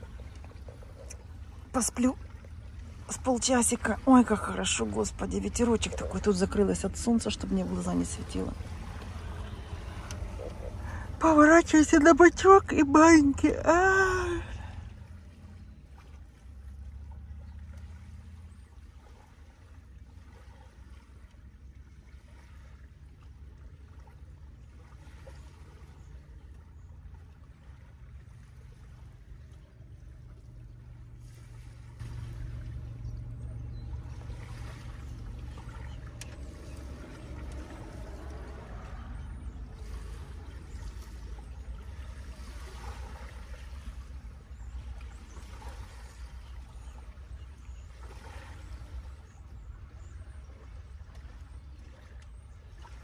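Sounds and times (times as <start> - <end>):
wind rumble on microphone: 26.7 - 53.0.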